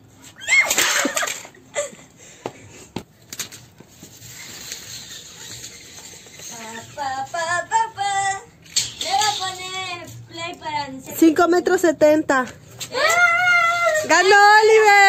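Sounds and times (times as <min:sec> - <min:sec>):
tape measure scraping on bricks: 0:03.9 - 0:10.2.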